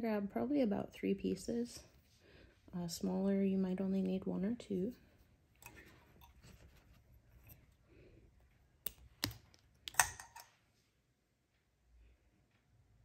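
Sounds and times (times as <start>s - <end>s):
clicks and taps of tools: 8.8s - 10.5s.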